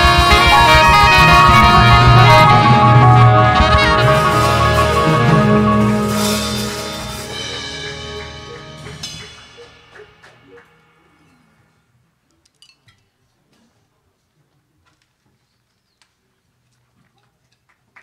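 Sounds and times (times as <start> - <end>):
jazz combo chord ringing: 0.0 - 9.9.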